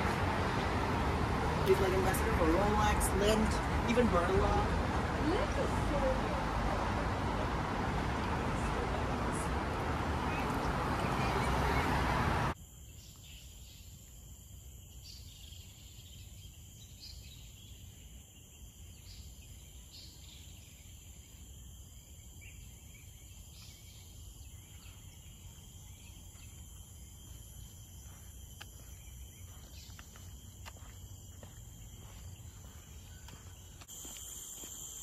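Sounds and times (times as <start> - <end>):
high insect drone: 12.5 - 35.0.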